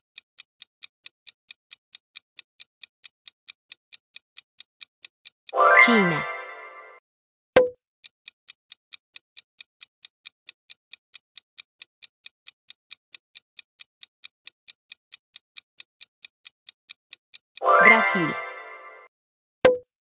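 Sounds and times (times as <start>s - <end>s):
clock ticking: 0.0s - 7.0s, 7.6s - 19.1s.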